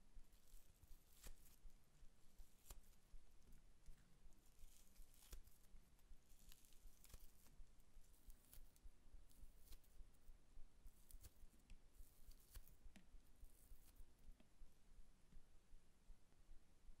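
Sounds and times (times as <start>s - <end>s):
slime tearing and rustling: 0.3s - 1.6s, 2.3s - 3.0s, 4.4s - 10.0s, 10.9s - 12.8s.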